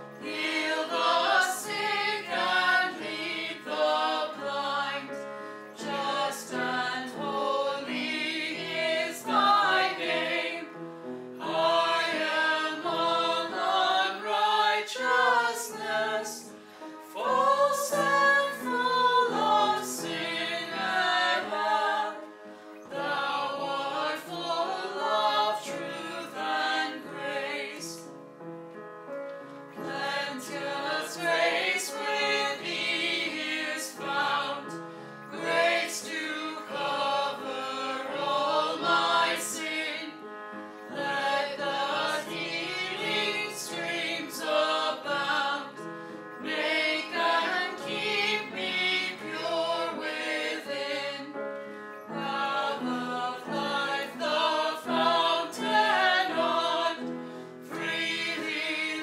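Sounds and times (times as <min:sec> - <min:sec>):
choir singing a hymn: 0:00.0 - 0:28.1, 0:29.7 - 0:59.0.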